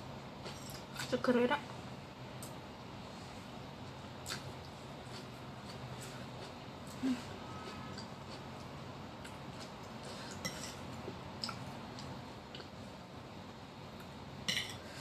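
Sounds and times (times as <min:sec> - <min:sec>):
quiet chewing: 0:04.2 - 0:10.8.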